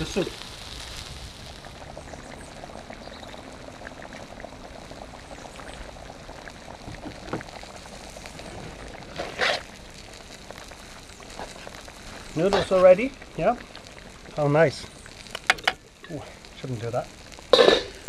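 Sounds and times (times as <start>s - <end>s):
soup bubbling in a pot: 0.0s - 18.0s.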